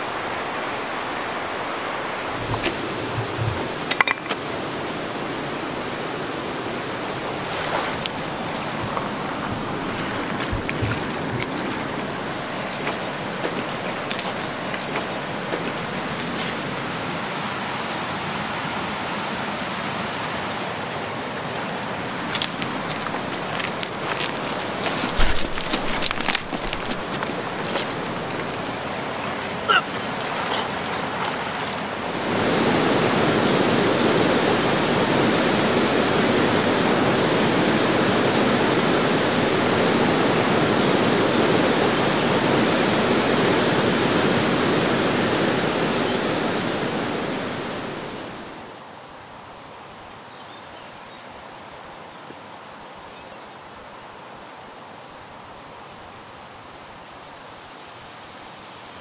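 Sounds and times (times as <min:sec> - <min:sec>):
river water hissing: 0:00.0 - 0:59.0
churning bubbling water: 0:02.3 - 0:04.7, 0:07.0 - 0:16.4, 0:22.1 - 0:33.2.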